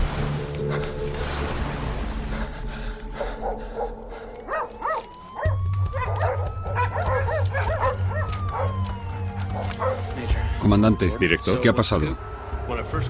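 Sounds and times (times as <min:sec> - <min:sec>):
steady low drone: 0:00.0 - 0:13.0
dogs barking and yelping: 0:03.1 - 0:10.2.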